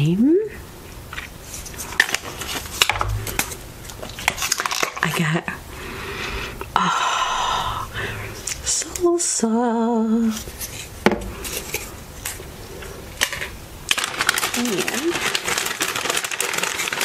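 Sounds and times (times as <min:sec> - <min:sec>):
plastic rustling: 0:01.1 - 0:05.1, 0:10.2 - 0:17.0.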